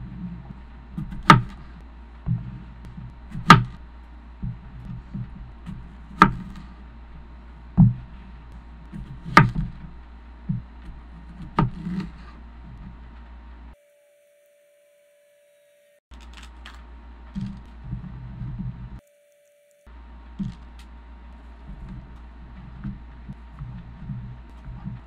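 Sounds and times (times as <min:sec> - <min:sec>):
low hum: 0:00.0 - 0:13.8, 0:16.1 - 0:19.0, 0:19.9 - 0:25.0
knife striking cutting board: 0:01.0 - 0:01.6, 0:03.3 - 0:03.8, 0:05.1 - 0:06.7, 0:09.0 - 0:09.8, 0:11.4 - 0:12.2.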